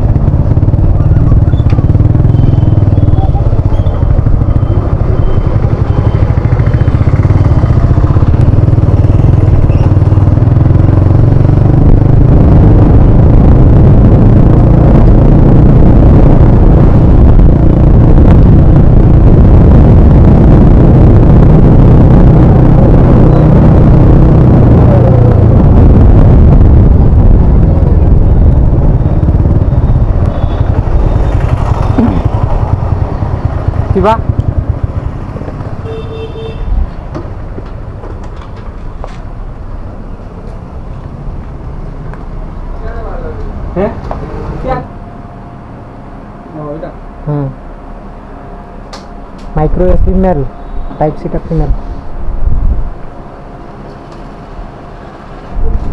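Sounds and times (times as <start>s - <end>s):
motorcycle engine low rumble: 0.0s - 55.9s
horn beep: 35.8s - 36.8s, 50.4s - 51.4s.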